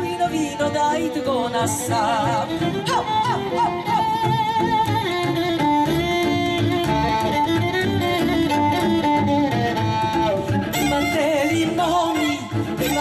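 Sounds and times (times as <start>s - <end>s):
woman singing: 0.0s - 4.3s, 10.7s - 13.0s
fiddles playing melody: 0.0s - 13.0s
double bass beat: 1.8s - 13.0s.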